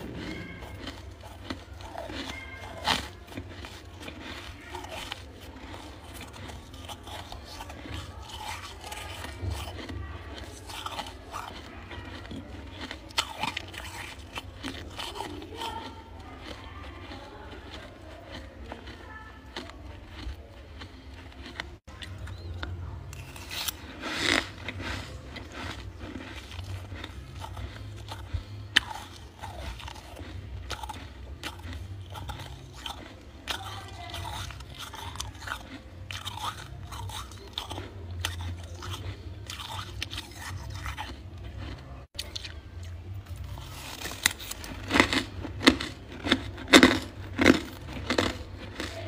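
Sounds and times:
crisp crunching of frost: 0:00.0 - 0:42.6, 0:43.2 - 0:49.0.

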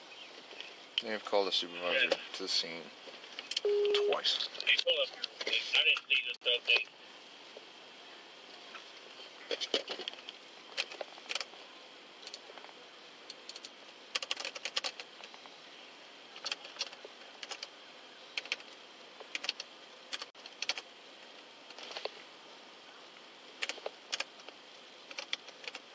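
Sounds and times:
laptop keyboard typing: 0:10.7 - 0:11.6, 0:13.3 - 0:15.3, 0:16.4 - 0:17.7, 0:18.4 - 0:20.9, 0:23.6 - 0:25.9.

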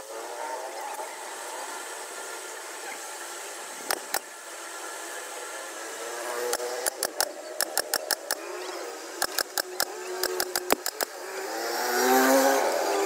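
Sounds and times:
mechanical hum: 0:00.0 - 0:13.0
pneumatic staple gun shots: 0:06.5 - 0:08.5, 0:09.2 - 0:11.2.

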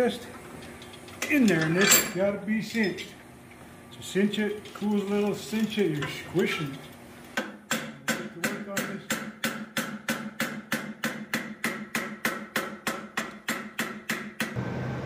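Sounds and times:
hammer striking hot steel: 0:07.4 - 0:14.6.

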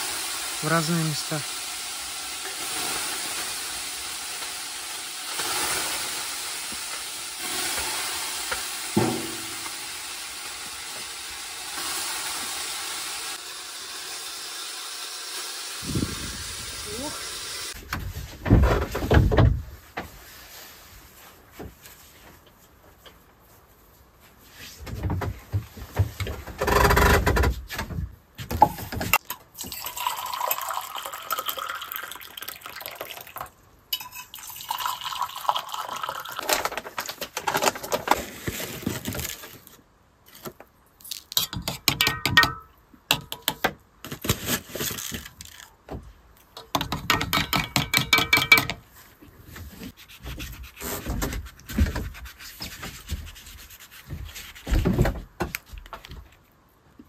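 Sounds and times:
water pouring: 0:00.0 - 0:17.8, 0:29.5 - 0:36.8
metal spoon clinking in mug: 0:33.9 - 0:34.4, 0:47.4 - 0:48.8.

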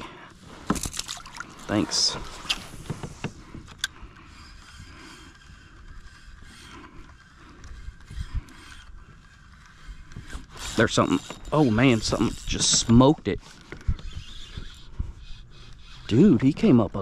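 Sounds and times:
spinning reel being cranked: 0:03.7 - 0:17.0.

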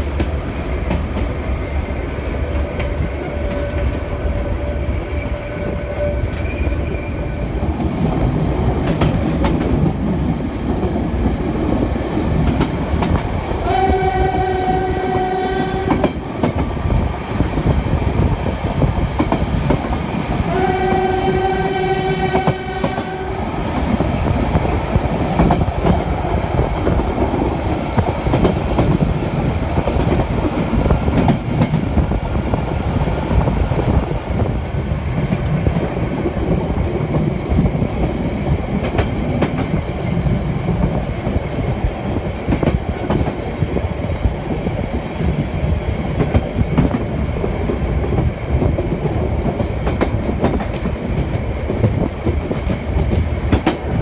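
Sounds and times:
train wheels rumbling on track: 0:00.0 - 0:54.0
train horn blasts: 0:13.6 - 0:16.2, 0:20.5 - 0:23.4.

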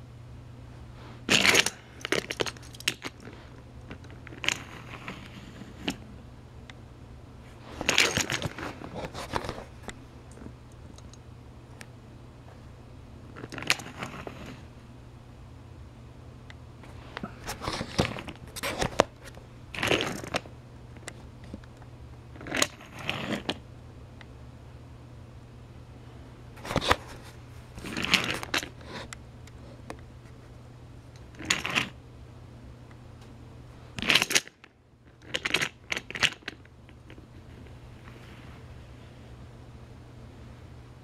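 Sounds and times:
steady low hum: 0:00.0 - 0:41.0
toy train pieces rustling and clicking: 0:01.3 - 0:06.0, 0:07.8 - 0:09.6, 0:31.4 - 0:32.0, 0:35.2 - 0:37.7.

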